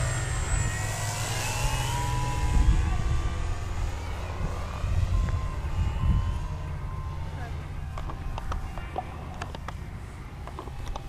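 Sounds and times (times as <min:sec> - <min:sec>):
model airplane motor droning: 0:00.0 - 0:11.0
wind on microphone: 0:01.5 - 0:07.0.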